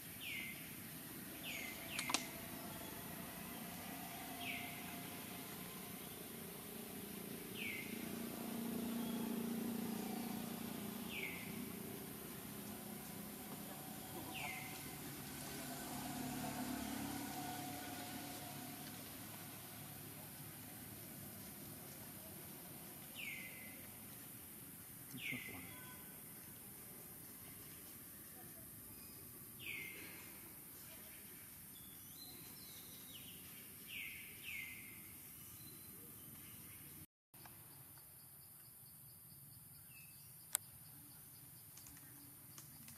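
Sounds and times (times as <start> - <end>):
high chirping calls: 7.5 - 12.0.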